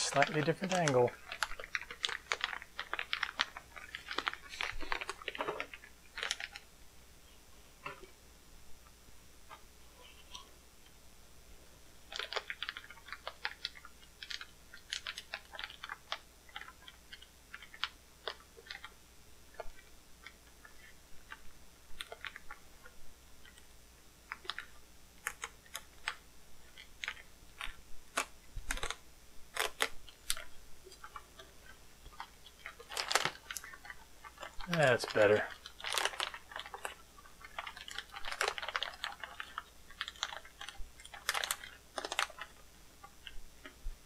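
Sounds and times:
plastic wrapping being cut and torn: 0.0s - 6.6s, 28.1s - 30.5s, 32.6s - 42.5s.

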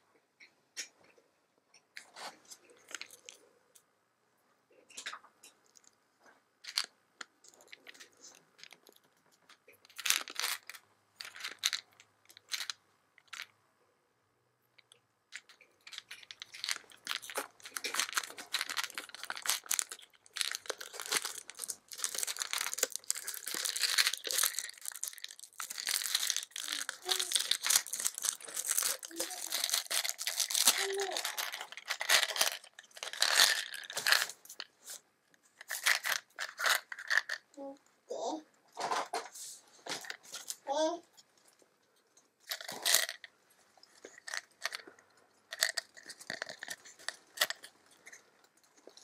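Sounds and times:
plastic film crinkling: 9.8s - 13.4s, 15.3s - 35.0s, 35.6s - 37.4s.

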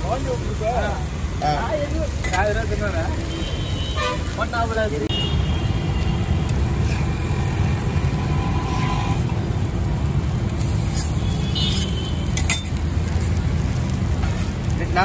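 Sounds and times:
road traffic rumble: 0.0s - 15.0s
street bustle: 0.0s - 15.0s
metal utensils clinking and scraping: 10.6s - 13.4s.

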